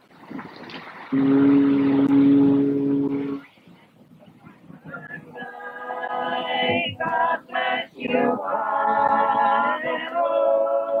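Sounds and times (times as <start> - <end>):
group singing in harmony: 5.0 - 11.0.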